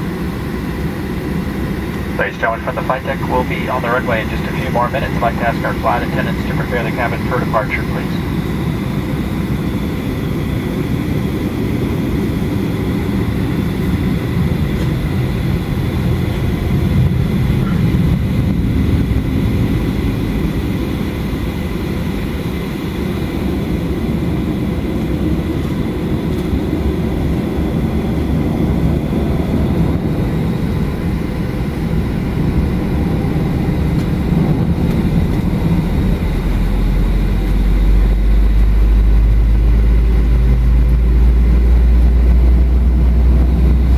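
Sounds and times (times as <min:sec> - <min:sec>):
airliner taxiing rumble: 0:00.0 - 0:43.9
faint high whine: 0:02.0 - 0:08.4.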